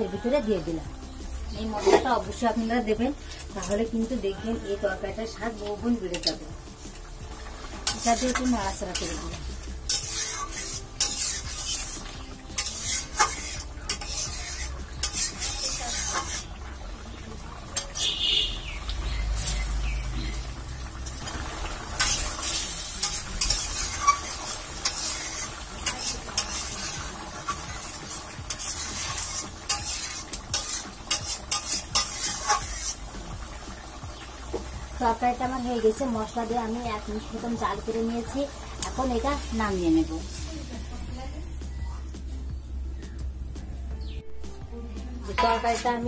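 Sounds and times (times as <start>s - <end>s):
curry sizzling and simmering: 0.0s - 46.0s
metal spatula scraping a wok: 1.4s - 35.0s, 37.9s - 40.4s, 45.2s - 46.0s.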